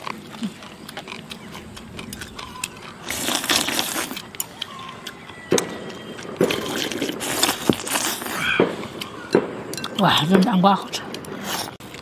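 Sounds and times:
slurping porridge: 0.0 - 5.5, 6.2 - 9.1, 11.3 - 12.0.

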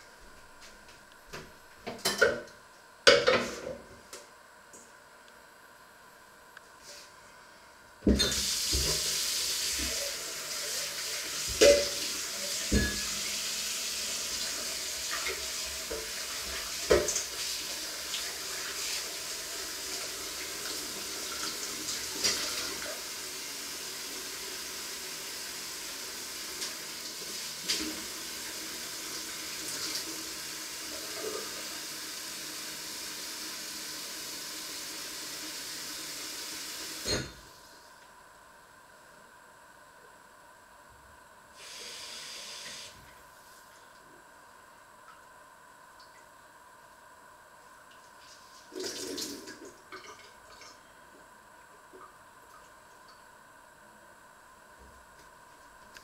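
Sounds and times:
tap running into sink: 8.1 - 9.1, 12.7 - 13.1.

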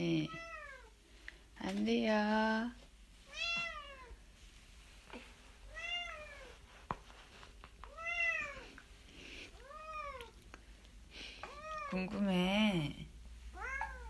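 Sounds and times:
cat meowing: 13.6 - 14.0.

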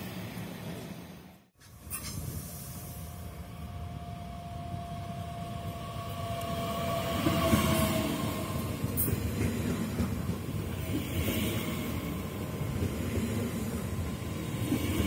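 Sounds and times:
electric train rumble and whine: 0.0 - 15.0.

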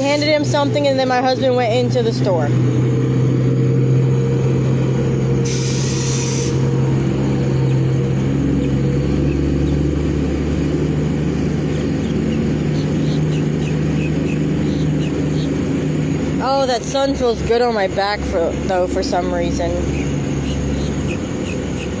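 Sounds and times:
vehicle engine running: 0.0 - 22.0
short hiss of air: 5.4 - 6.7.

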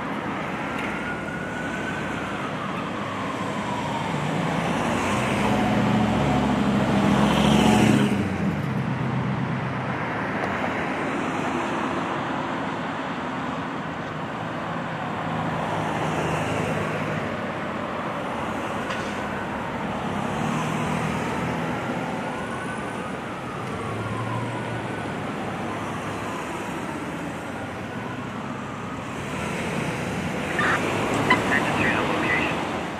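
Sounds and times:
distant fire engine siren: 0.0 - 8.1, 15.0 - 32.9
road traffic: 0.0 - 32.9
heavy vehicle engine rumbling: 30.3 - 32.9.

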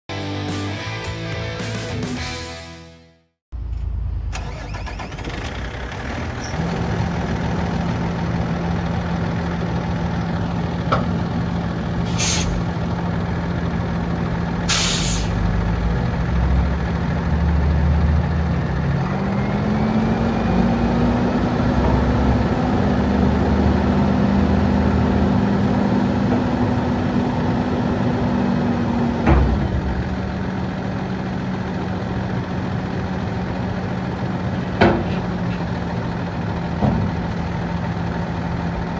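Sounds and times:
diesel truck engine: 3.5 - 38.9
air hissing: 12.1 - 12.6, 14.7 - 15.4.

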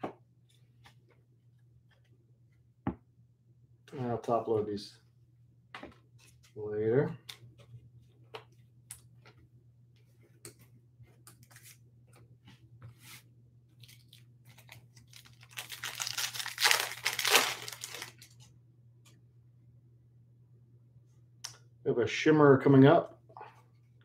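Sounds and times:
foil wrapper tearing: 13.8 - 18.4.

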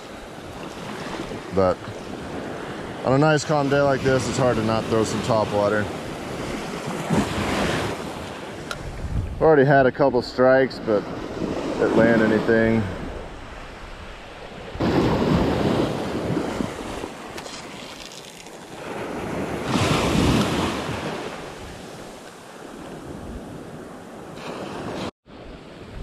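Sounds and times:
waves breaking on beach: 0.0 - 9.0, 10.9 - 26.0
wind buffeting microphone: 5.9 - 17.8, 25.3 - 26.0.

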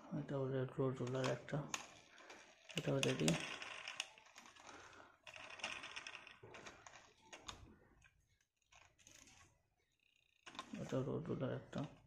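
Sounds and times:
plastic toy clicking: 1.0 - 9.4, 10.0 - 10.9.

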